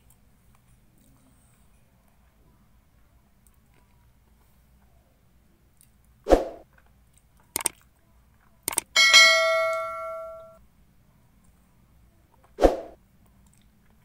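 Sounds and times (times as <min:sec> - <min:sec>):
mouse clicks: 0:07.6 - 0:07.8, 0:08.7 - 0:08.9
bell ding: 0:09.0 - 0:10.6.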